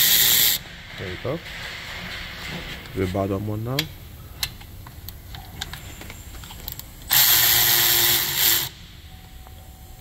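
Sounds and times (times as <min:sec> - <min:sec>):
electric ratchet motor whirring: 0:00.0 - 0:00.6, 0:07.1 - 0:08.8
ratchet clicking: 0:00.0 - 0:00.6, 0:07.1 - 0:08.8.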